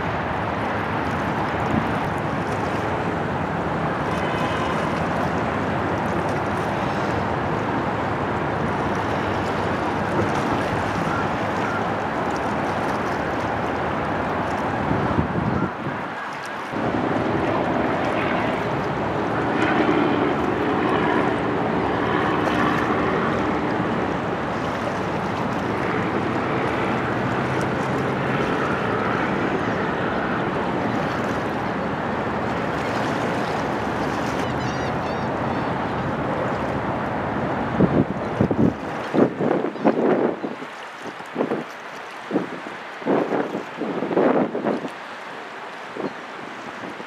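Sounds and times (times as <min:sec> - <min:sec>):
waterfront background noise: 0:00.0 - 0:47.0
wind: 0:00.0 - 0:47.0
low hum: 0:16.8 - 0:31.6.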